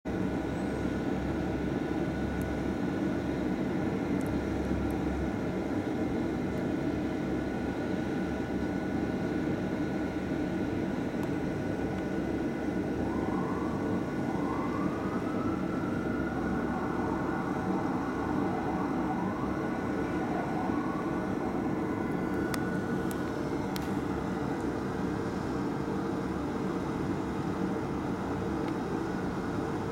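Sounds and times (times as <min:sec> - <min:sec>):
city traffic noise: 0:00.1 - 0:29.9
fire engine siren wailing: 0:11.7 - 0:27.2.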